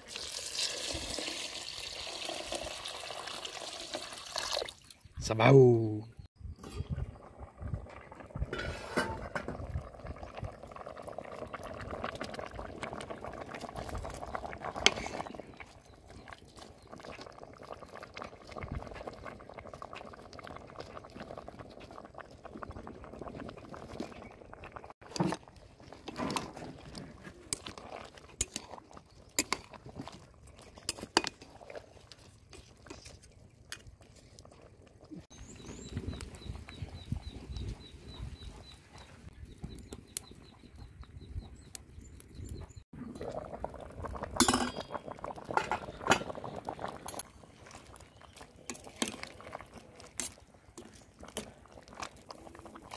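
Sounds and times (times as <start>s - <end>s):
broth bubbling in a pot: 0.0s - 4.8s, 6.6s - 52.9s
pot and utensils clinking: 8.5s - 9.7s, 44.4s - 46.5s.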